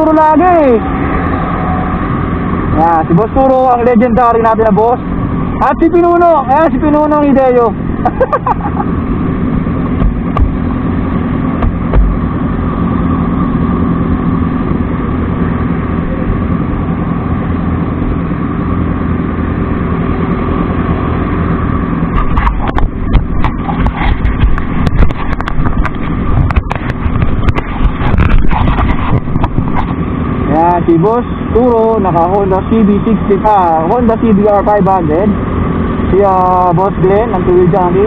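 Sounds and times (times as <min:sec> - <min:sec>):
knocks on microphone: 0:11.6 - 0:12.2.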